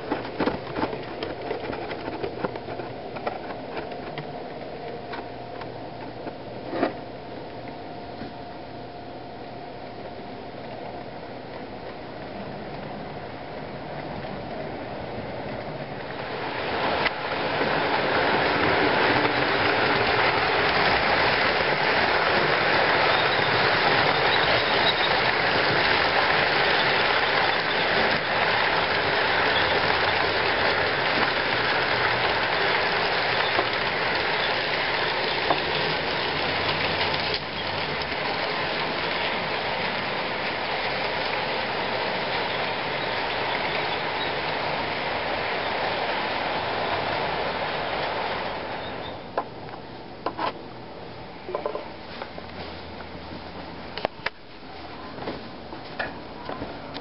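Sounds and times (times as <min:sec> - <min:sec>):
model train wheels rattling: 0:00.0 - 0:04.2, 0:16.1 - 0:46.0.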